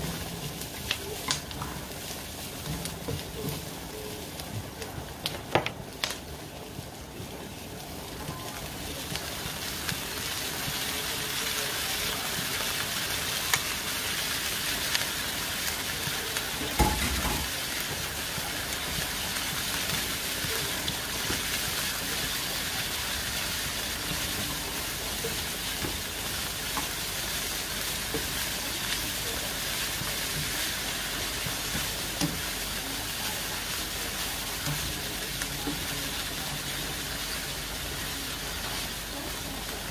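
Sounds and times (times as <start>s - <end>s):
onions and meat sizzling: 0.0s - 39.9s
utensil stirring food: 0.0s - 39.9s.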